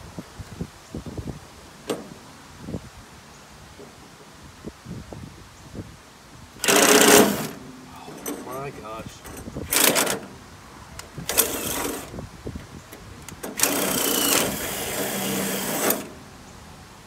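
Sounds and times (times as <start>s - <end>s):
cordless drill boring into metal: 6.6s - 7.6s, 11.3s - 12.1s, 13.5s - 16.2s.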